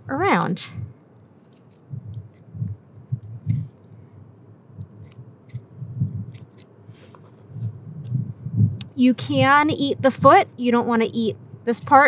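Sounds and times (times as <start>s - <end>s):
dull low thumps: 0.0s - 1.0s, 1.8s - 11.7s
scissors snipping: 3.4s - 3.8s, 5.0s - 5.7s, 6.3s - 6.7s.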